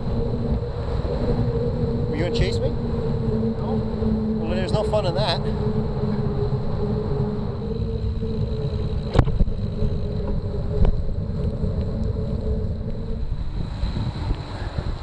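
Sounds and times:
steady hum: 0.0s - 15.0s
wind on microphone: 0.0s - 15.0s
bicycle tyres on wet path: 7.6s - 15.0s.

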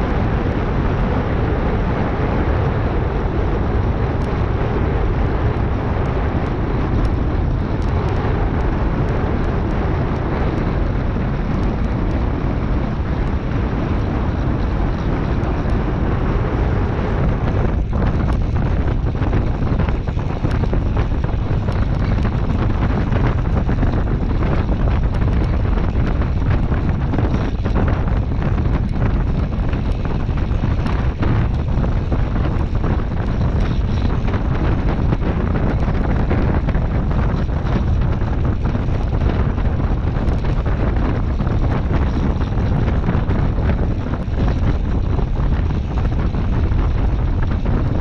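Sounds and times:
wind rush on microphone: 0.0s - 48.0s.

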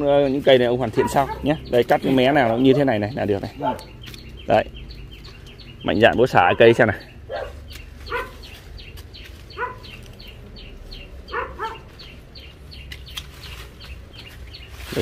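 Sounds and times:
bird chirping: 0.0s - 15.0s
dog barking: 0.9s - 1.6s, 2.6s - 3.0s, 3.6s - 4.0s, 6.4s - 8.6s, 9.5s - 10.0s, 11.3s - 11.9s.

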